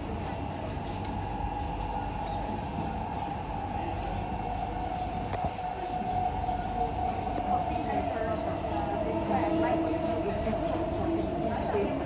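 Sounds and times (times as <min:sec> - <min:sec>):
constant train hum: 0:00.0 - 0:12.0
train wheels rumbling on track: 0:00.0 - 0:12.0
faint click: 0:01.0 - 0:01.2.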